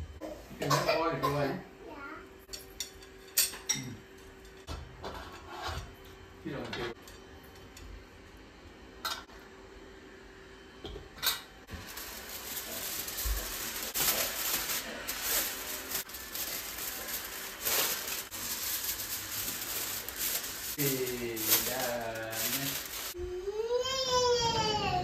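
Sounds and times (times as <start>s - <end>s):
foil crinkling and rustling: 11.7s - 23.2s.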